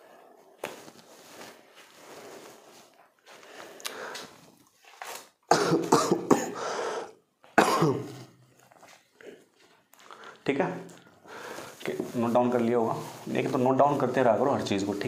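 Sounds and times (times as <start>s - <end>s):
man coughing hard: 5.5s - 6.6s, 7.6s - 8.2s.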